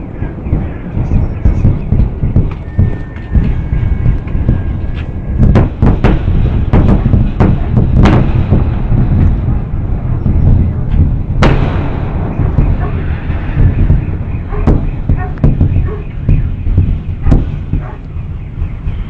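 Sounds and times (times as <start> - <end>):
booms and sharp bangs: 0.0 - 19.0
heavy rolling rumble: 0.0 - 19.0.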